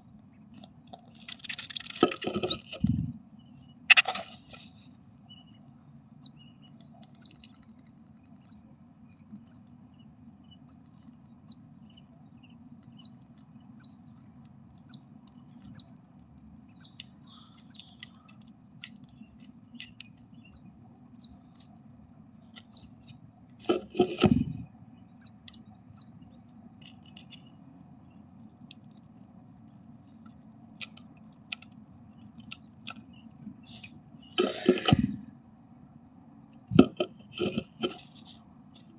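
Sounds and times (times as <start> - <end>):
steady low hum: 0.0 - 38.9
birds peeping: 0.2 - 38.3
bird rustling in nest: 3.9 - 5.0, 22.5 - 24.6.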